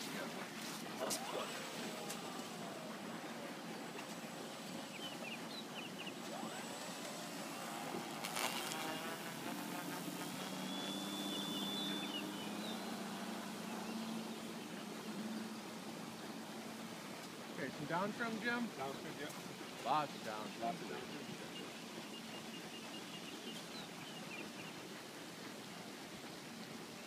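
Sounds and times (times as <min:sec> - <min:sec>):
wind and water hiss: 0:00.0 - 0:27.0
electric motors and propellers: 0:00.7 - 0:18.4.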